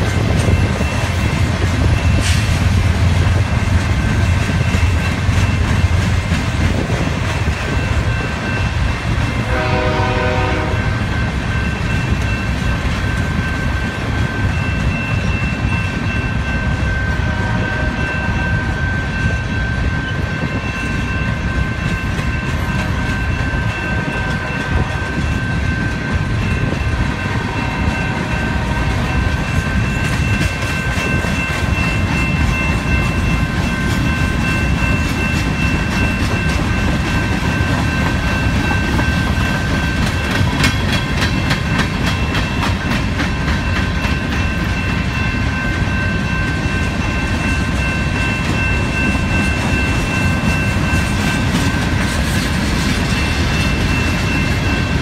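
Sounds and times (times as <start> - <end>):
freight train rumble and wheel clatter: 0.0 - 55.0
distant train horn chord: 9.3 - 11.2, 17.0 - 18.8.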